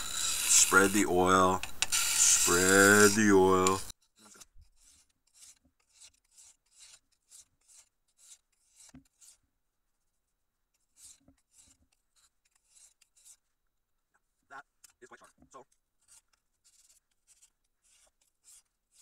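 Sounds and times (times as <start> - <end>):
knife scraping on sharpening stone: 0.0 - 9.4.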